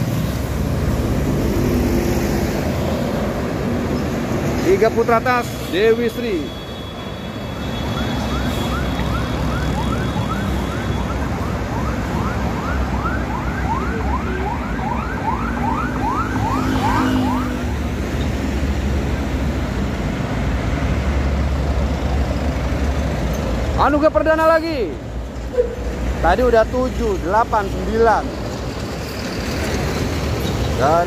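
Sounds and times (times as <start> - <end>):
rumble of buses and traffic: 0.0 - 31.0
siren yelping: 7.9 - 17.8.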